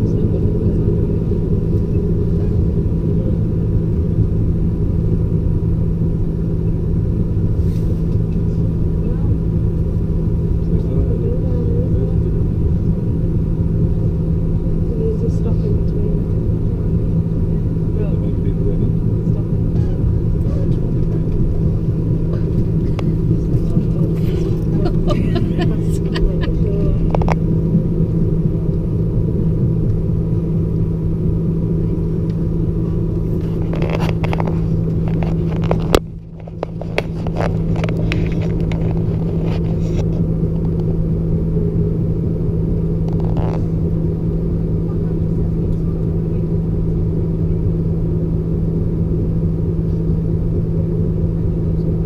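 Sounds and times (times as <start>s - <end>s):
diesel engine drone: 0.0s - 52.0s.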